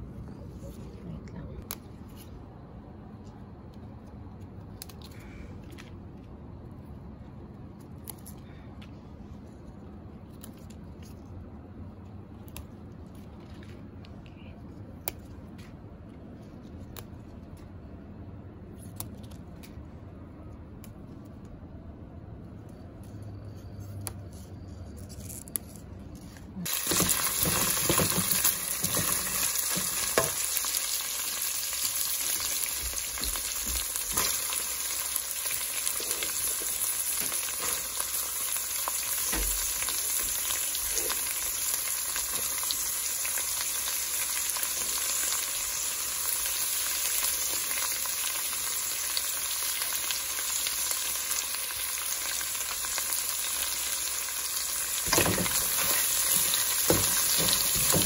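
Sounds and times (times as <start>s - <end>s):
food sizzling in a frying pan: 26.6s - 58.0s.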